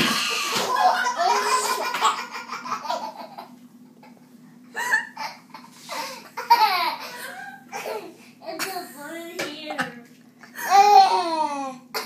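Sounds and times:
baby laughing: 0.0 - 4.2, 4.8 - 8.7.

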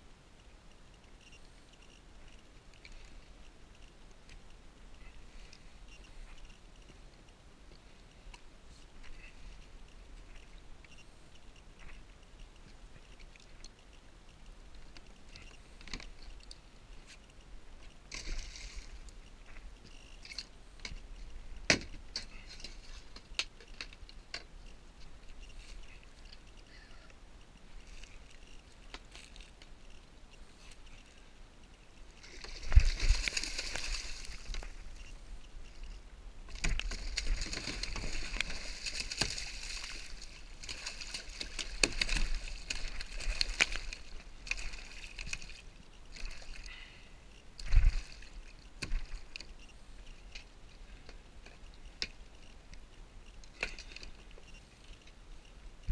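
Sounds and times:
light water sounds: 0.3 - 55.9
small clicks and knocks: 9.0 - 26.8.

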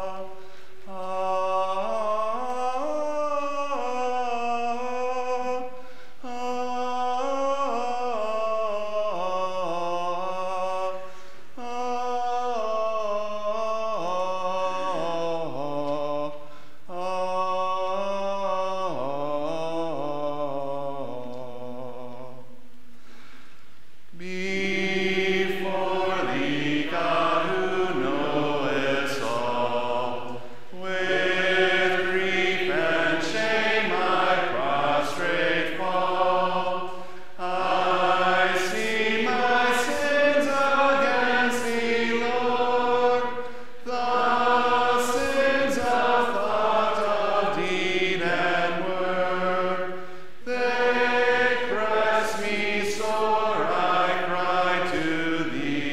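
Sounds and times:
congregation singing a hymn: 0.0 - 22.6, 24.1 - 55.9
singers breathing: 0.3 - 0.9, 5.7 - 6.3, 11.0 - 11.6, 16.4 - 16.9, 22.9 - 23.9, 30.3 - 30.8, 36.9 - 37.4, 43.4 - 43.9, 49.9 - 50.4.

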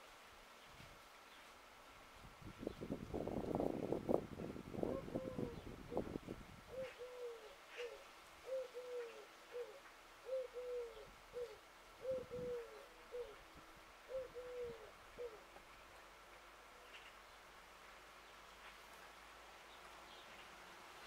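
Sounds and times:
dove cooing: 4.8 - 6.1, 6.7 - 13.4, 14.1 - 15.5.

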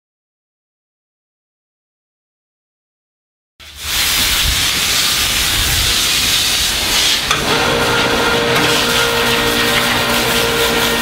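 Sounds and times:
hose nozzle spraying water: 3.6 - 11.0
machine hum with steady tones: 5.7 - 11.0.

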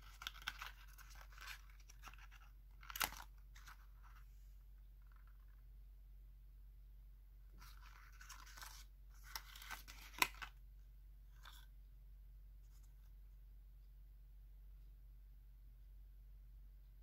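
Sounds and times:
rustling handling noise: 0.0 - 5.6, 7.5 - 10.6
faint low hum: 0.0 - 17.0.

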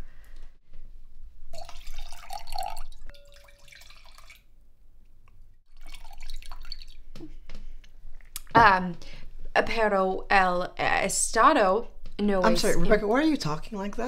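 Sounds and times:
wine pouring into a glass: 1.5 - 4.4, 5.7 - 7.1
glass clinking: 1.6 - 4.4.

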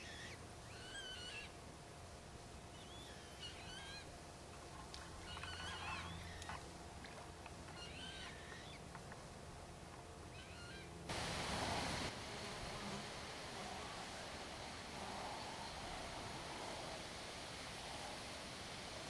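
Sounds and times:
water bird calling: 0.0 - 1.6, 2.7 - 4.2, 4.9 - 8.9, 10.3 - 11.0
low steady hum: 0.0 - 19.0.

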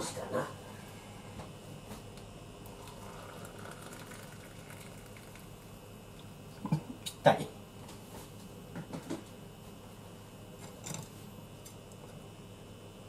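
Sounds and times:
water pouring into a cup: 2.7 - 5.6.

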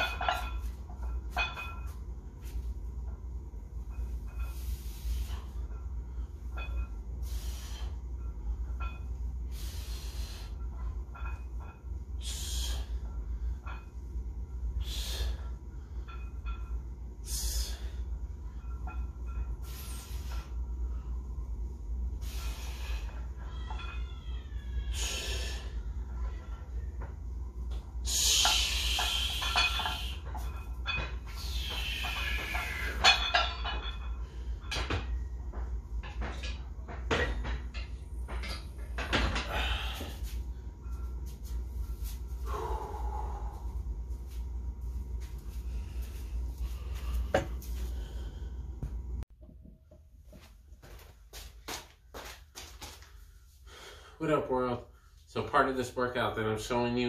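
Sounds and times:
steady low rumble: 0.0 - 23.1, 25.6 - 52.0
steady low hum: 0.0 - 57.0
man breathing out forcefully: 14.8 - 15.5, 39.4 - 40.4, 42.4 - 43.8.

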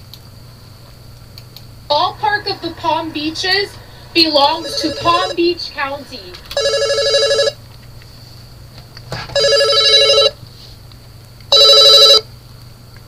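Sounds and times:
telephone ringing electronic trill: 2.1 - 7.6, 9.4 - 10.4, 11.5 - 12.3.

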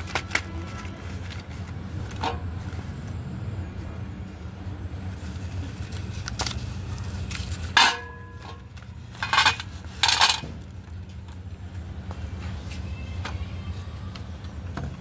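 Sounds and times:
low hum: 0.0 - 15.0
pencils clattering onto metal plate: 7.4 - 10.6.

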